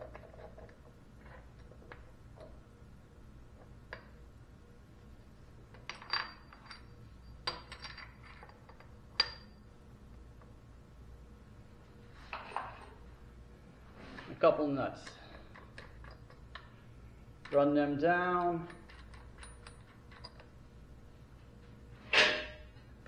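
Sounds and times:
metal clinks and knocks: 0:05.7 - 0:09.6, 0:18.3 - 0:20.5.

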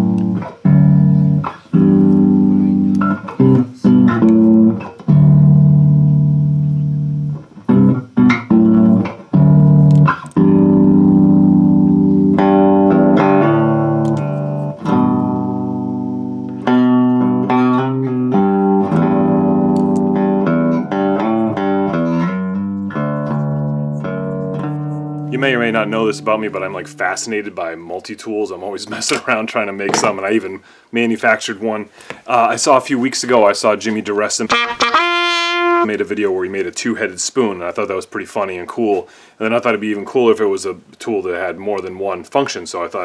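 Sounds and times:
plucked bass guitar music: 0:00.0 - 0:27.5, 0:34.5 - 0:36.0.

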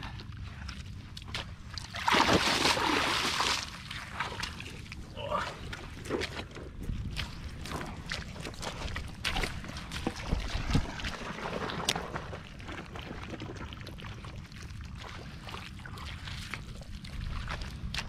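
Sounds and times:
hands splashing in muddy water: 0:01.7 - 0:12.4.

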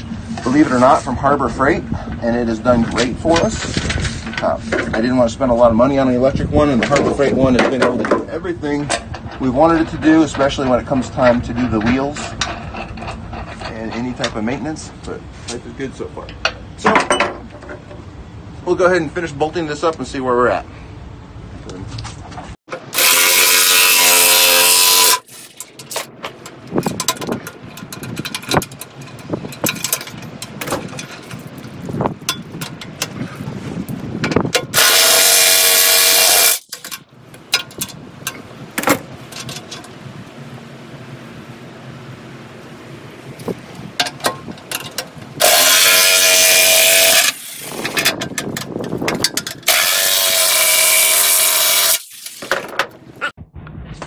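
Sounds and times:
metallic clicks and knocks: 0:25.5 - 0:33.2, 0:36.6 - 0:40.0, 0:43.4 - 0:45.3
impact wrench hammering bolts: 0:34.2 - 0:39.8.

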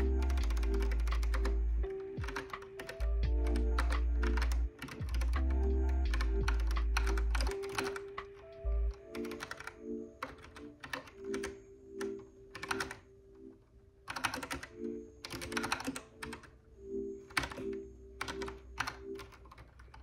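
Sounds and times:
mechanical keyboard typing: 0:00.0 - 0:16.6, 0:17.2 - 0:20.0
soft background music: 0:00.0 - 0:20.0.

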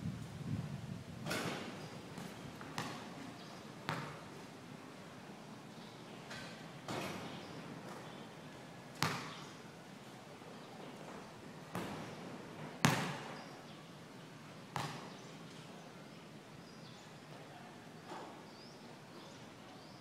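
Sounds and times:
basketball bouncing on concrete: 0:02.2 - 0:03.1, 0:03.9 - 0:04.2, 0:09.0 - 0:09.4, 0:12.8 - 0:13.3, 0:14.8 - 0:15.2.

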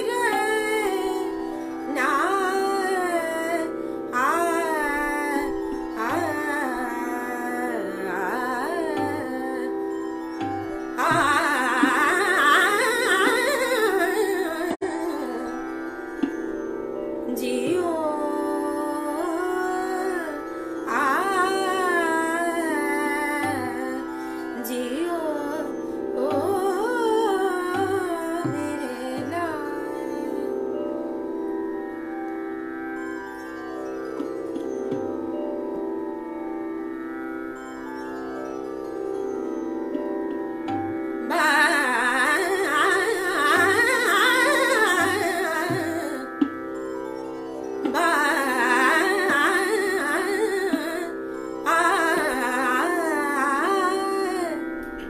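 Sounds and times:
woman singing: 0:00.0 - 0:16.4, 0:17.2 - 0:30.9, 0:41.2 - 0:46.6, 0:47.8 - 0:55.0.

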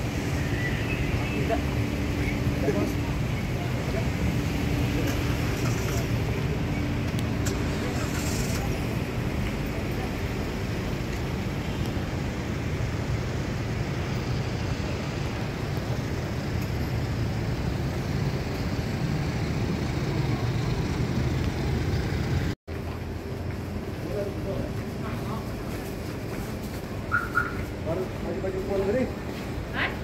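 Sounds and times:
road traffic rumble: 0:00.0 - 0:30.0.

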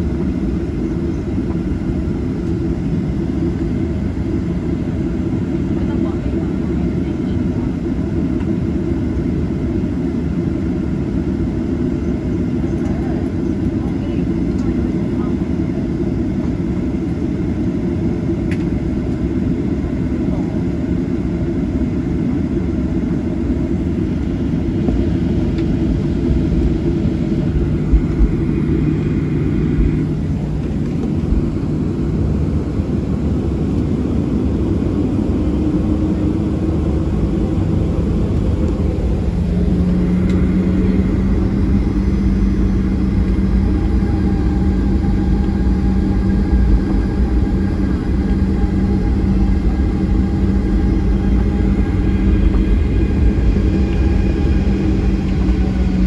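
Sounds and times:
airplane engines rumbling: 0:00.0 - 0:56.0
cabin hum: 0:23.9 - 0:56.0.

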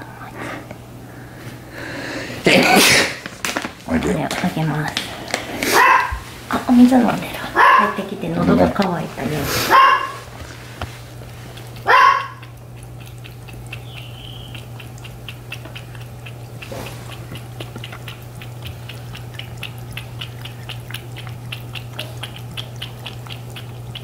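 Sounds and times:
fountain pump humming: 0:05.8 - 0:24.0
cat lapping water: 0:06.9 - 0:24.0.

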